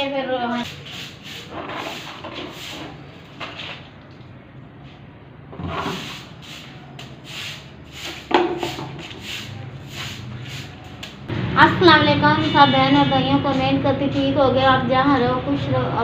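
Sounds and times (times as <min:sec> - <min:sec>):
hand broom sweeping brick floor: 0:00.0 - 0:03.9, 0:04.8 - 0:11.3.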